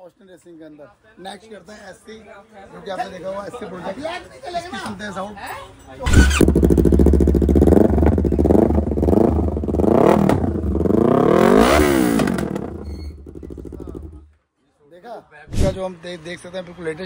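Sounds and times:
motorcycle engine revving: 6.1 - 14.3.

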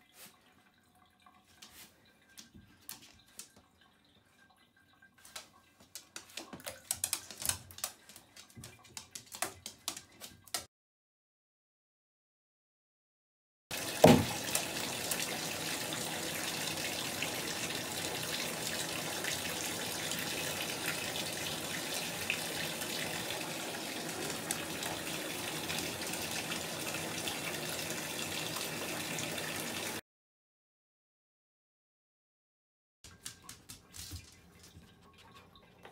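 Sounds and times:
water running into tub: 0.0 - 10.7, 13.7 - 30.0, 33.1 - 35.9
bath bomb splashing into water: 14.0 - 14.5.

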